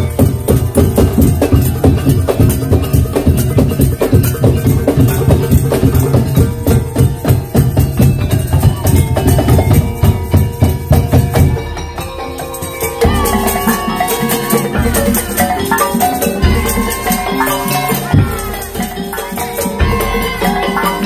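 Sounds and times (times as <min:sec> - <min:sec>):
heavy bass drums: 0:00.0 - 0:11.9
fast percussion ensemble drumming: 0:00.0 - 0:21.0.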